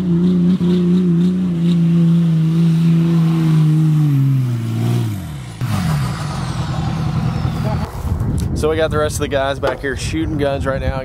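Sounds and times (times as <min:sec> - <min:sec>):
truck engine revving high: 0:00.0 - 0:08.2
tires spinning in dirt: 0:00.0 - 0:08.3.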